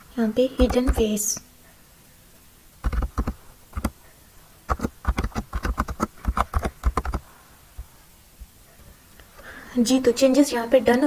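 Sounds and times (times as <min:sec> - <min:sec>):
typing on computer keyboard: 0:00.6 - 0:01.1, 0:02.8 - 0:04.0, 0:04.7 - 0:07.2.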